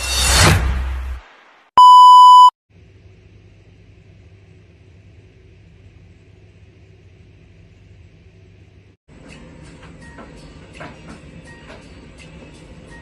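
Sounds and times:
high-pitched electronic beep: 1.8 - 2.5.

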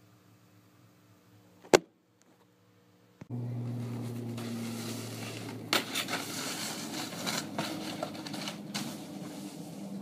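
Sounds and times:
snowboard scraping over snow: 4.0 - 10.0.

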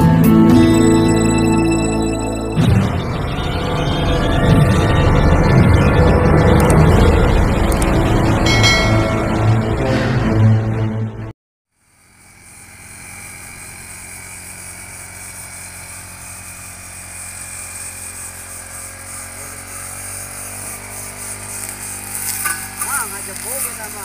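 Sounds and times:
brush cutter engine running: 11.7 - 24.0.

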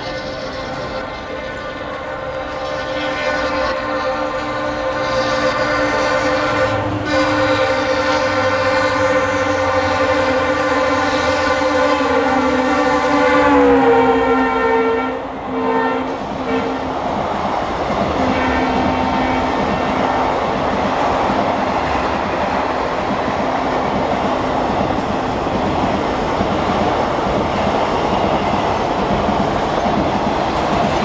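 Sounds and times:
train wheels rumbling and clattering: 0.0 - 14.4, 15.2 - 31.0
locomotive horn: 0.0 - 16.9, 18.2 - 20.3.

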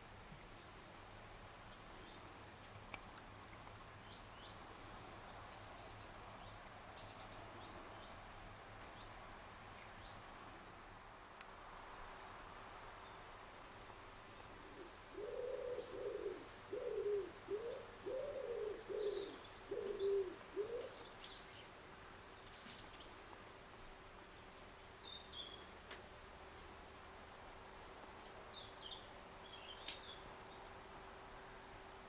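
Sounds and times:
small birds chirping faintly: 0.0 - 32.0
pigeon cooing: 14.7 - 21.0.

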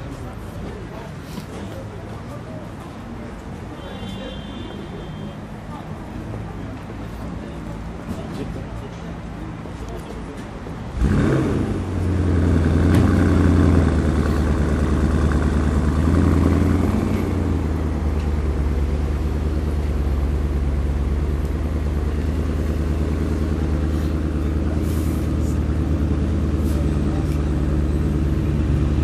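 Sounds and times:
car engine idling: 11.0 - 29.0.

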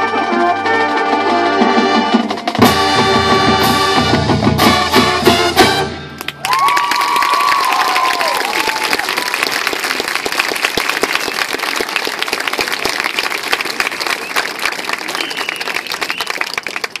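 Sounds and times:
crowd applauding and cheering: 6.2 - 17.0.

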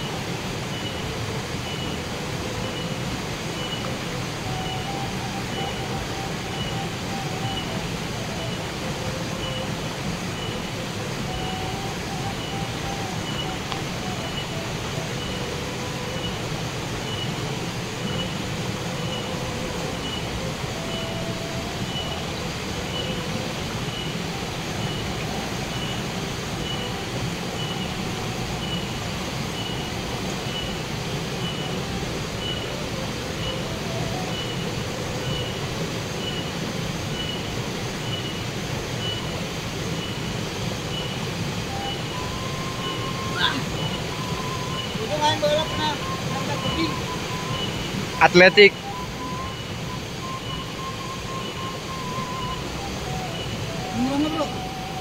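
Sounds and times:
stream rushing: 0.0 - 55.0
high chirp: 40.9 - 55.0.

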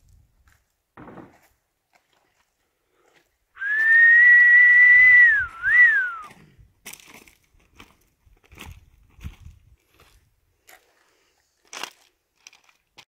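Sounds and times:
person whistling: 3.6 - 6.3.

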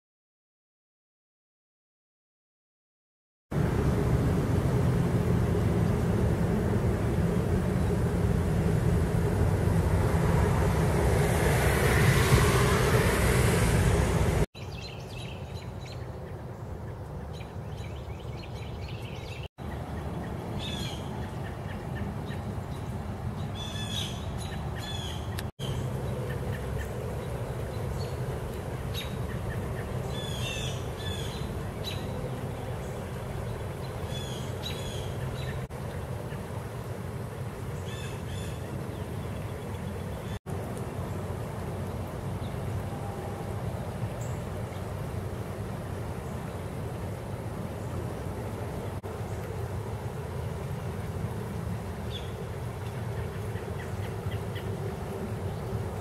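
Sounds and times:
car passing: 3.5 - 14.5
floodwater rushing: 3.6 - 14.5, 19.6 - 56.0
birds chirping: 14.6 - 36.5, 52.0 - 54.8.

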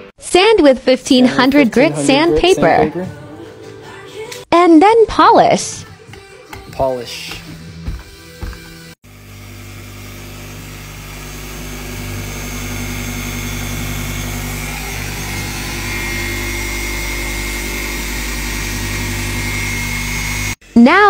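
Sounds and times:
electric polisher whining: 7.3 - 20.8.

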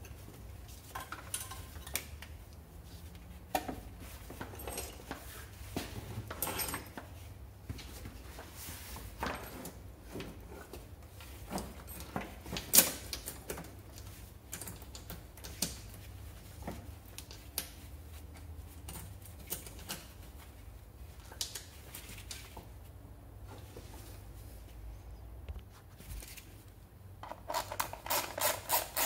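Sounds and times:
metal tools clicking and clinking: 0.9 - 2.2.

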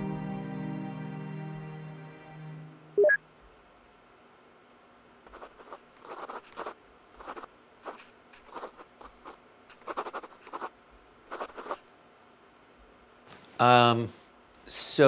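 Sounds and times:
pen writing on paper: 5.3 - 10.7, 11.3 - 11.8.

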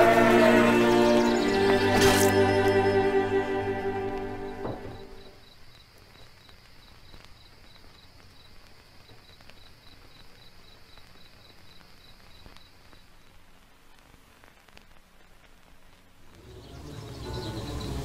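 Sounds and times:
sustained music note: 0.0 - 5.3, 16.4 - 18.0
insect chirping: 0.0 - 13.4, 16.4 - 18.0.

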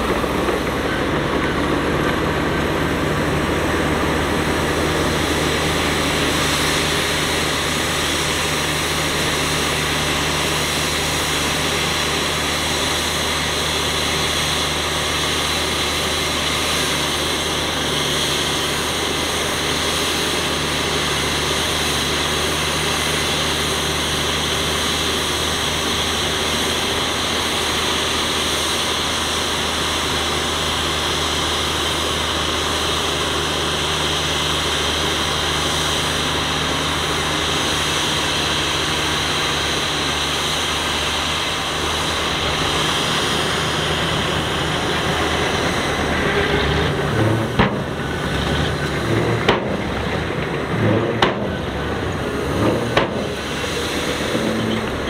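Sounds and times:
heavy diesel engine running: 0.0 - 55.0.

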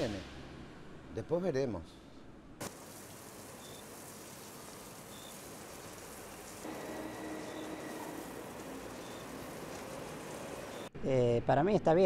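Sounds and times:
street traffic hum: 0.0 - 11.0
hose water spraying on pavement: 2.6 - 10.9.

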